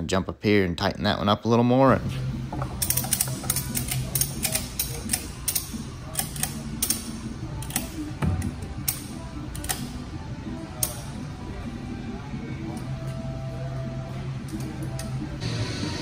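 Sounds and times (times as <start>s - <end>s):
ratchet strap pawl clicking: 2.8s - 8.0s.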